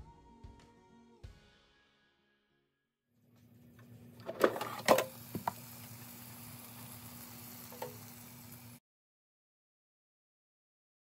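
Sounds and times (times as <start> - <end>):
air fryer fan hum: 3.4 - 8.8.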